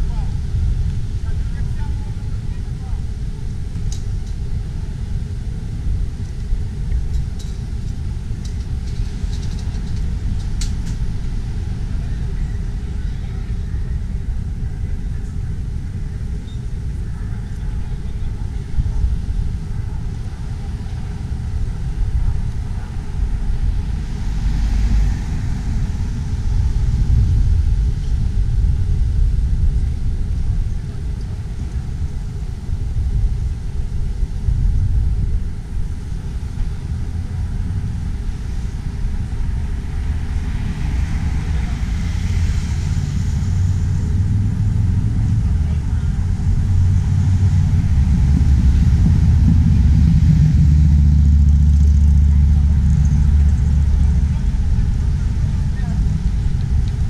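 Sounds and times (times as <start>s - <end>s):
low rumble of road traffic: 0.0s - 57.0s
cars passing: 16.8s - 30.0s, 36.0s - 57.0s.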